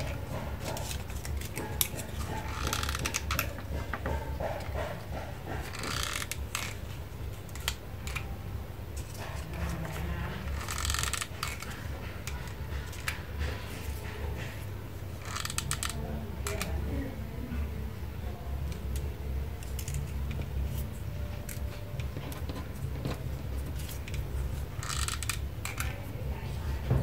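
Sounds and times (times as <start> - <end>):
paper clicks and taps: 0.0 - 8.4, 9.0 - 17.1.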